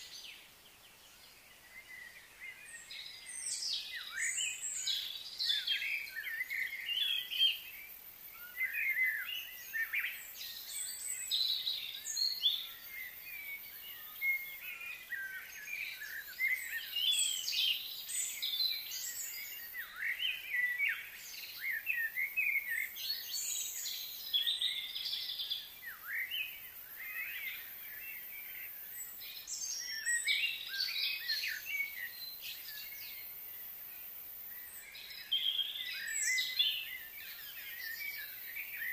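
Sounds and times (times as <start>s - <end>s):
faint steady high hiss: 0.0s - 38.9s
small birds chirping: 0.0s - 38.9s.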